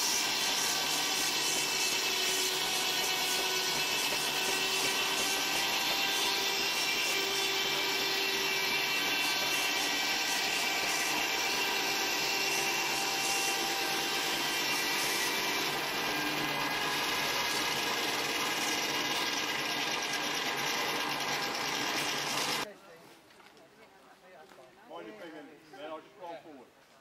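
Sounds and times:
steam engine driving belt machinery: 0:14.6 - 0:22.6.

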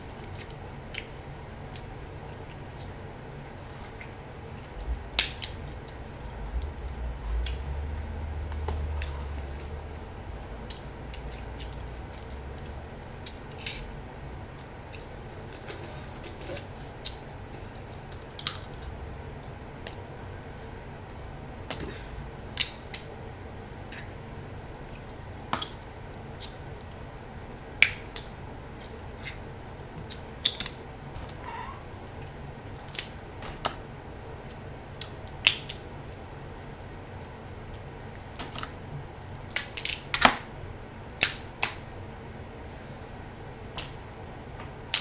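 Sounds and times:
crab shells cracking: 0:39.4 - 0:40.4.

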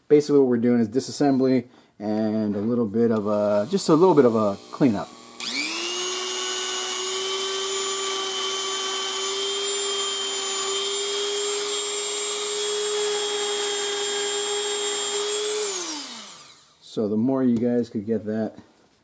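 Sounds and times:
rotary tool whining: 0:03.2 - 0:16.8.

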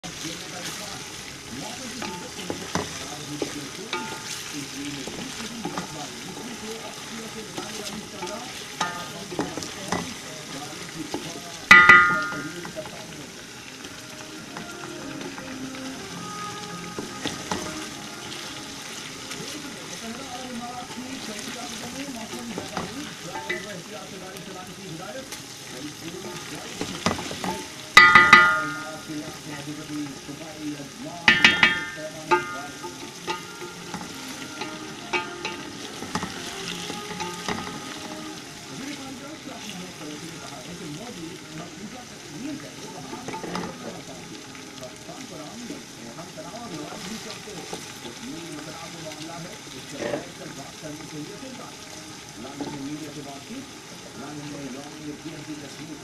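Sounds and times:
chicken sizzling in a pot: 0:00.0 - 0:56.0
pot ringing: 0:02.0 - 0:23.9, 0:26.1 - 0:29.6, 0:31.2 - 0:38.8, 0:42.6 - 0:44.6
spatula knocking against pot: 0:11.2 - 0:12.8, 0:26.3 - 0:29.0, 0:31.3 - 0:36.4.

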